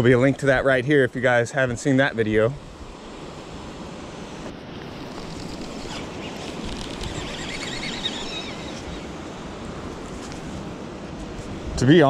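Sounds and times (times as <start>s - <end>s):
wind noise on microphone: 2.7s - 12.0s.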